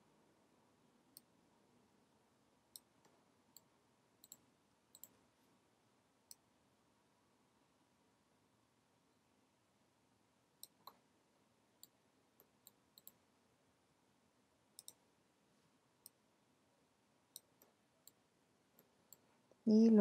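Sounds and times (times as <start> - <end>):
computer mouse clicks: 2.7 - 5.2, 10.6 - 11.0, 11.8 - 13.2, 14.8 - 15.0, 17.3 - 18.2.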